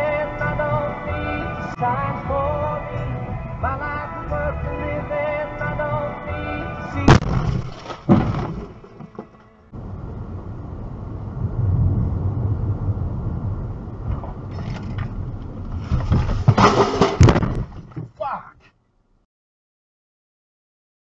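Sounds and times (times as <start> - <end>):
road and engine noise in car: 9.0 - 16.0.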